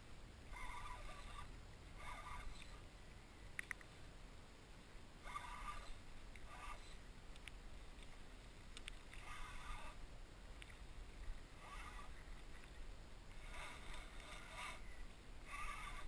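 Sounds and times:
faint clicks: 3.5 - 3.9, 7.3 - 9.5, 10.5 - 15.2.

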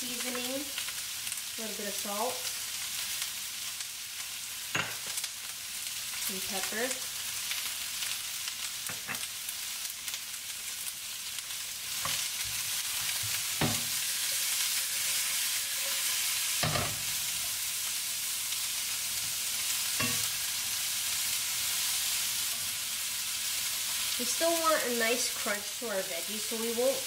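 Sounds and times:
vegetables sizzling in a pan: 0.0 - 27.0
wooden spatula knocking on pan: 13.6 - 13.9.

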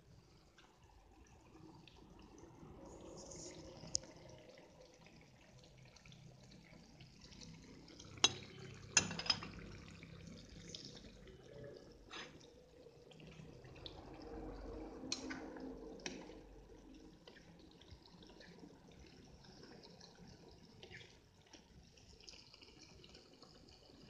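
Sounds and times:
stew simmering and bubbling: 0.0 - 24.0.

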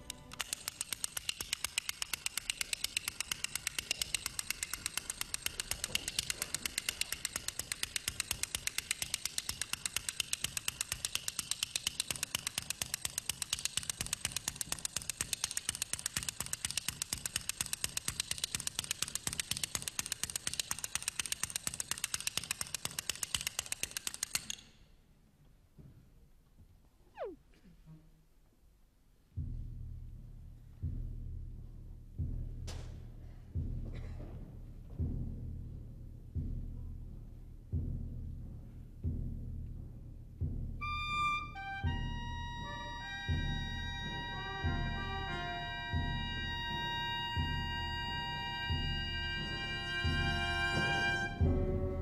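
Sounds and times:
dry percussion clicking: 0.0 - 24.8.

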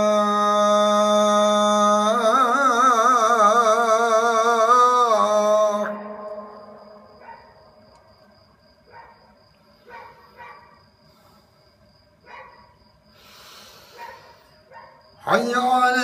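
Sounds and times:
faint high whine: 0.0 - 16.0
faint bark-like animal calls: 8.8 - 11.4, 13.8 - 15.0.

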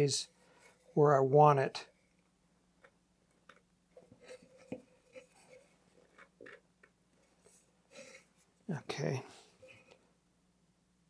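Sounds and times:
fiberglass scraping and tapping: 2.8 - 8.3.

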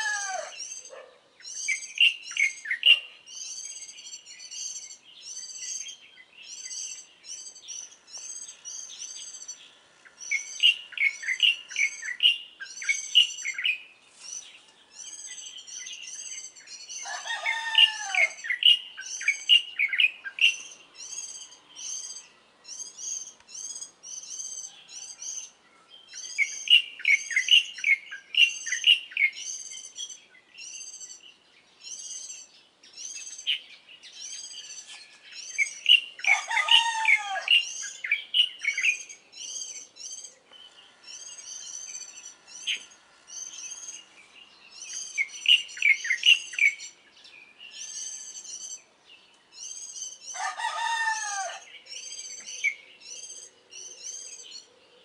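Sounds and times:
rooster crowing: 0.0 - 0.6, 17.0 - 18.5, 36.2 - 37.7, 50.3 - 51.7
songbirds chirping: 0.0 - 55.0.

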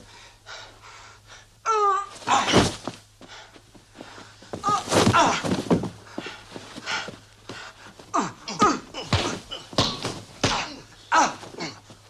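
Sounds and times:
body thudding on mat: 2.2 - 3.0, 4.4 - 7.2, 9.0 - 10.8
men grunting and gasping: 7.9 - 12.0.

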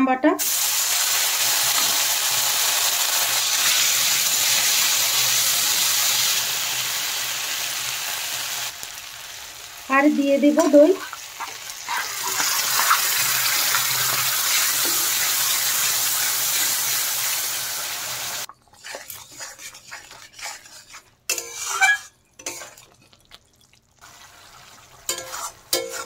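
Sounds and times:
paste sizzling in hot oil: 0.4 - 10.0, 10.6 - 23.1, 24.0 - 26.0
metal spatula scraping pan: 18.5 - 23.0, 25.1 - 26.0.

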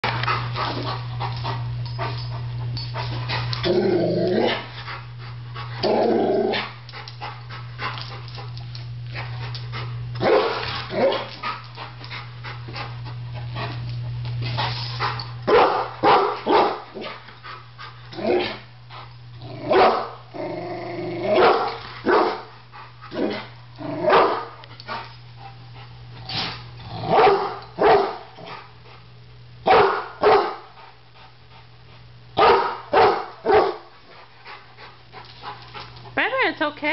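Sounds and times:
dog growling: 3.5 - 4.7, 5.8 - 6.6, 19.4 - 21.4, 23.1 - 24.2
dog barking: 10.2 - 11.3, 15.5 - 16.8, 19.7 - 20.2, 21.4 - 22.4, 24.1 - 24.5, 27.1 - 28.2, 29.7 - 30.6, 32.4 - 33.9.

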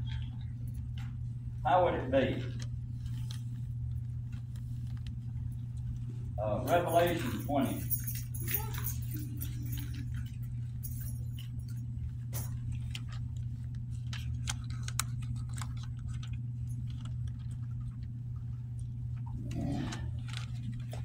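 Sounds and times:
low hum: 0.0 - 21.0
pages turning: 2.4 - 6.3, 11.8 - 19.0, 19.6 - 21.0.

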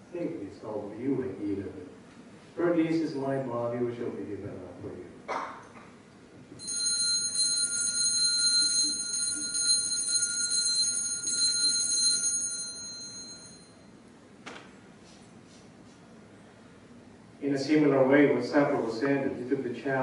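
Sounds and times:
altar bell ringing: 6.6 - 13.9.

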